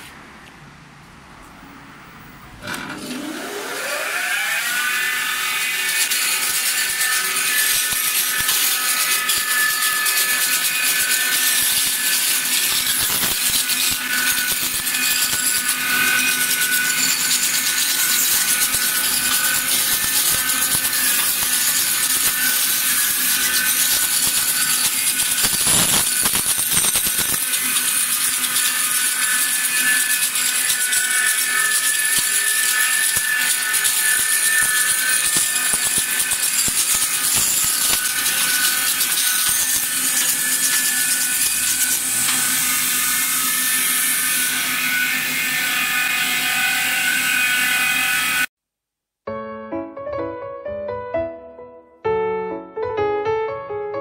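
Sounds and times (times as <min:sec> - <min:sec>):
electric motor spinning up: 0:02.6 - 0:05.9
sanding machine whine and hiss: 0:03.1 - 0:48.5.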